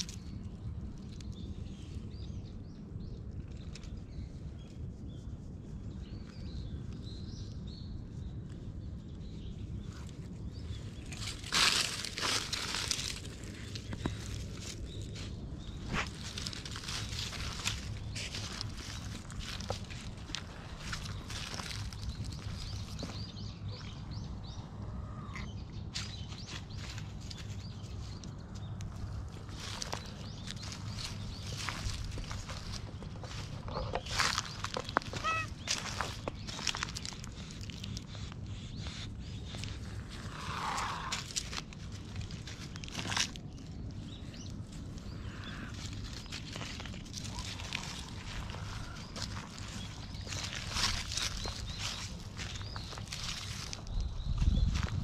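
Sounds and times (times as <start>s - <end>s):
small birds chirping: 0.0s - 55.0s
steady low rumble: 0.0s - 55.0s
faint rustles: 3.3s - 55.0s
footsteps crunching dry leaves: 10.8s - 23.9s, 28.9s - 55.0s
bird chirping: 29.6s - 41.4s.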